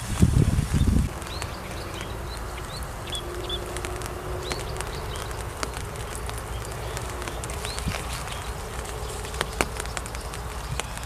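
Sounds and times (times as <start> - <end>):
small birds chirping: 0.0 - 11.0
insect buzzing: 0.5 - 11.0
light ticks: 1.1 - 11.0.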